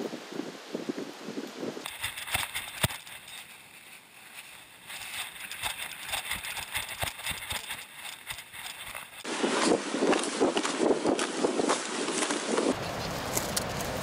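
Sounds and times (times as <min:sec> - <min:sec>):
camera mount rubbing: 0:04.9 - 0:09.3
dog footfalls on rocky trail: 0:04.9 - 0:12.8.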